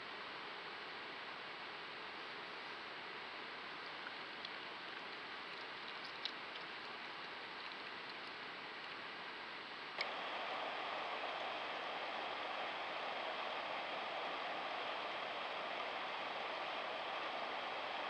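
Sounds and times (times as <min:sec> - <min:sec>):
steady recording hiss: 0:00.0 - 0:18.0
faint ticks: 0:03.9 - 0:09.0.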